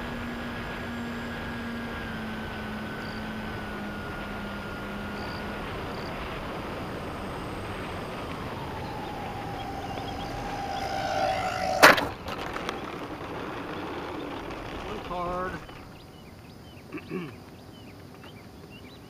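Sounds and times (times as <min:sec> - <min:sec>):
model plane electric motors whining: 0:00.0 - 0:16.0
plane crashing on pavement: 0:05.7 - 0:16.0
rush of air: 0:06.9 - 0:12.2.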